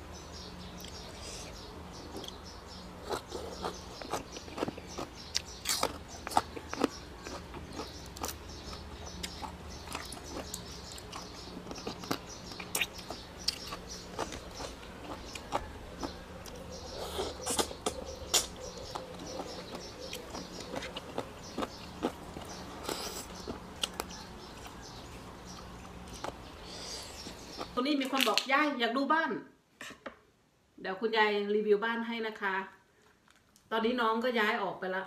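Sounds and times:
person chewing crunchy food: 0.8s - 27.8s.

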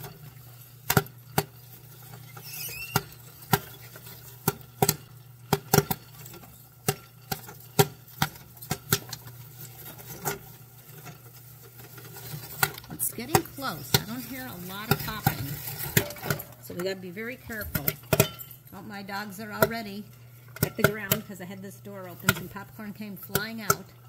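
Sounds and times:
popcorn popping: 0.0s - 24.0s
steady low hum: 12.7s - 24.0s.

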